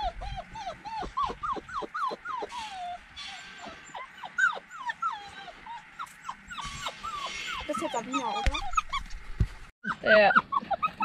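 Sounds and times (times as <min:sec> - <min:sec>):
puppies whimpering: 0:00.0 - 0:09.2, 0:09.8 - 0:11.0.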